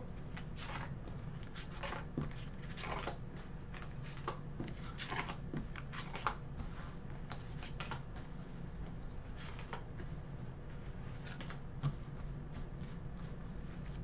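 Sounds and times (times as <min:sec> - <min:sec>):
cards rustling and flicking: 0:00.4 - 0:06.4, 0:07.3 - 0:08.3, 0:09.4 - 0:10.0, 0:11.1 - 0:12.0.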